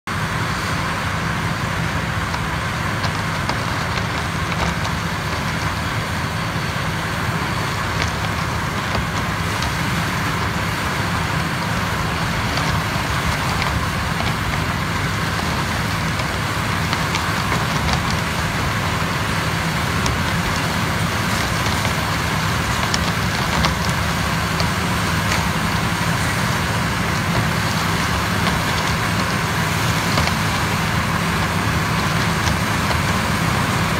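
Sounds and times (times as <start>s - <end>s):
harvester running under load: 0.1s - 33.9s.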